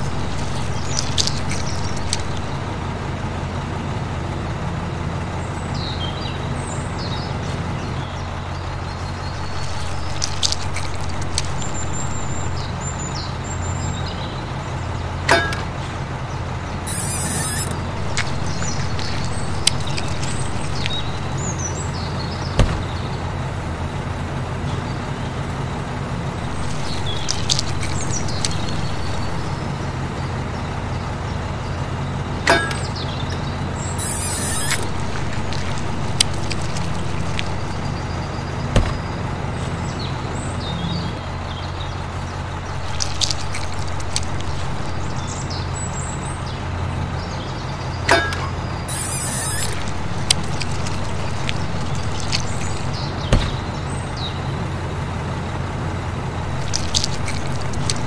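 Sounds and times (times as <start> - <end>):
short high chirps: 16.9 - 17.8, 34.0 - 35.0, 48.9 - 50.0
small electric motor humming: 34.0 - 35.8, 48.9 - 50.1
sharp clicks: 34.0 - 37.9.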